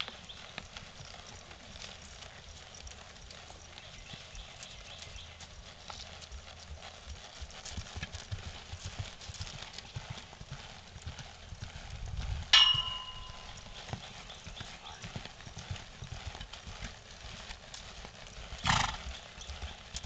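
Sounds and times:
horse hooves on soft dirt: 0.0s - 20.0s
sharp metallic clang: 12.5s - 13.6s.

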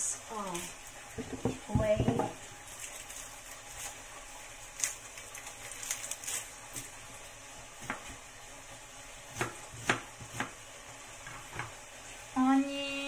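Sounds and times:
food sizzling in a pan: 0.0s - 13.0s
knife knocking on cutting board: 1.2s - 2.4s.

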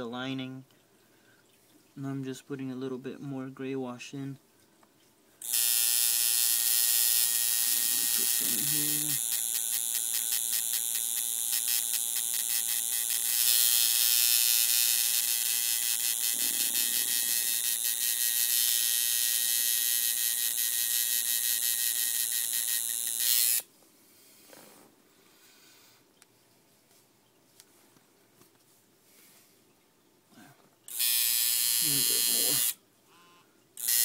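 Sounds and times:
tattoo machine buzzing: 5.4s - 23.7s, 30.9s - 34.0s.

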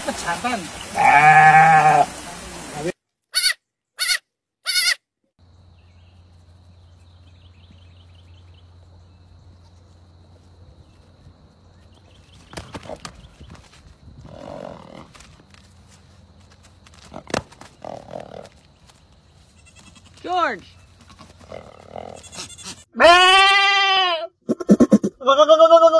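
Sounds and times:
goat kid bleating: 1.0s - 2.1s, 3.3s - 5.0s, 19.6s - 20.2s, 22.0s - 24.3s, 25.2s - 25.9s.

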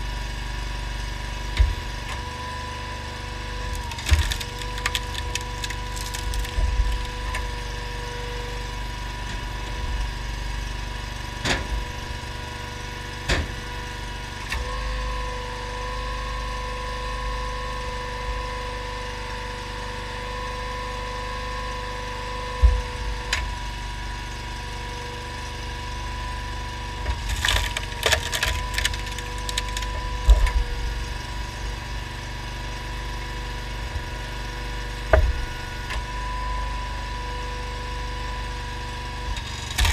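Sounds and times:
engine running: 0.0s - 39.9s
logs cracking and splitting: 3.3s - 9.2s, 26.5s - 36.2s, 39.4s - 39.9s.

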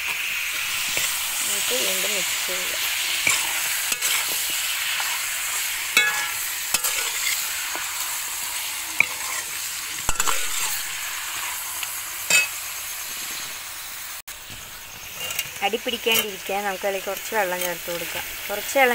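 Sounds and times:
chicken sizzling in a pan: 0.0s - 18.9s
spoon scraping and knocking pan: 3.2s - 5.2s, 5.9s - 12.6s.

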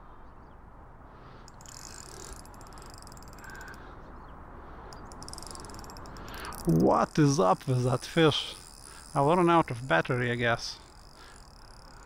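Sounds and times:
fishing reel clicking rapidly: 1.5s - 3.8s, 4.9s - 12.0s.

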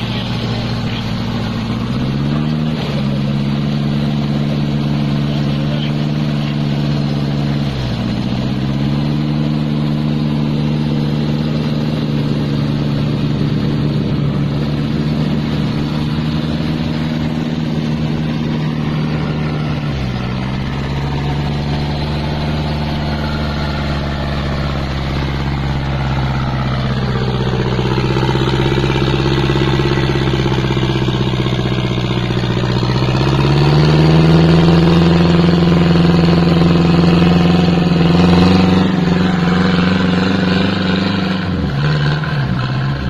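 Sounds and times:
car engine revving in mud: 0.0s - 43.0s.

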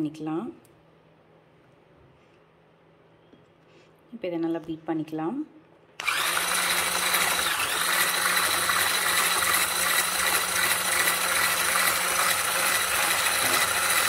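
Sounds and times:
electric hand whisk beating batter: 6.0s - 14.0s.

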